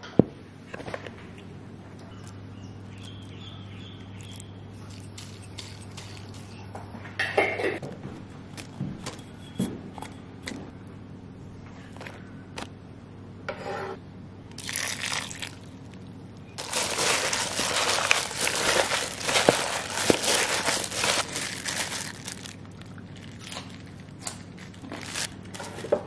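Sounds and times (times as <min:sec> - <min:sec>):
crinkling and rustling: 0:16.6 - 0:26.0.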